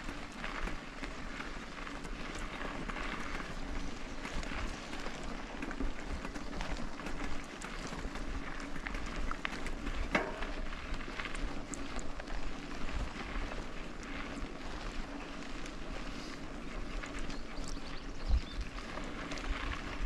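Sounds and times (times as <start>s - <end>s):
bike clicks and rattles: 0.0s - 20.0s
bike tyres on dirt: 0.0s - 20.0s.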